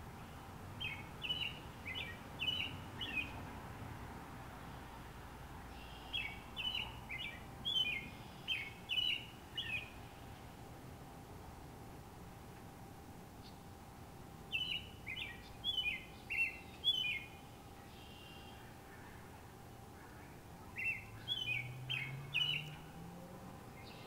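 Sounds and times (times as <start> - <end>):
bird singing whistled notes: 0.8 - 3.4, 5.8 - 10.0, 14.5 - 18.7, 20.2 - 22.9, 23.8 - 24.0.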